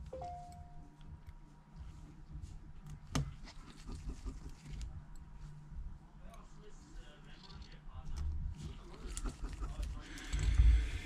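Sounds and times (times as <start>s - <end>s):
screwdriver scratching: 3.4s - 5.0s, 8.6s - 11.0s.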